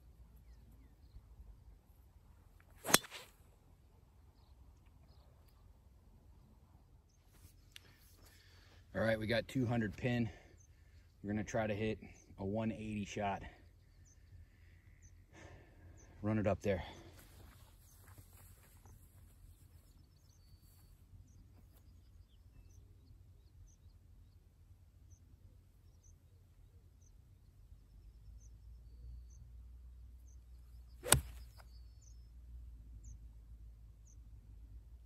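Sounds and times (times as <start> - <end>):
golf club striking ball: 2.8 - 3.2, 31.0 - 31.6.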